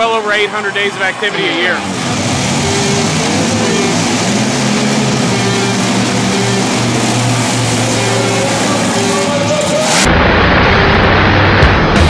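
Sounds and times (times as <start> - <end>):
monster truck engine running: 0.0 - 12.0
rock music with guitar: 9.4 - 12.0.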